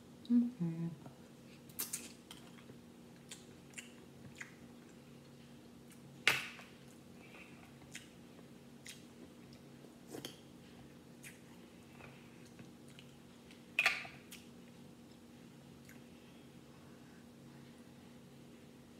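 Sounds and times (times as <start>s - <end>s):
chewing: 6.8s - 8.2s, 11.2s - 13.6s.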